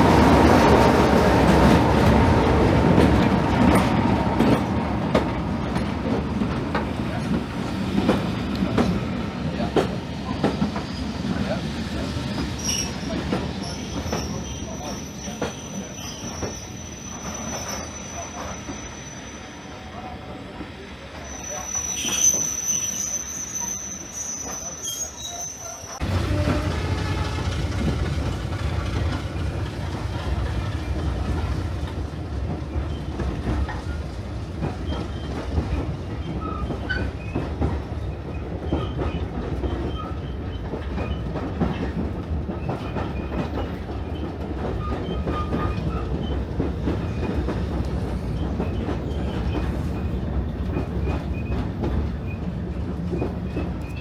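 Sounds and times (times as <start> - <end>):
train wheels rumbling on track: 0.0 - 54.0
train wheels squealing: 10.2 - 20.1, 21.1 - 26.0, 32.7 - 34.0, 34.8 - 35.4, 36.1 - 41.9, 42.6 - 54.0.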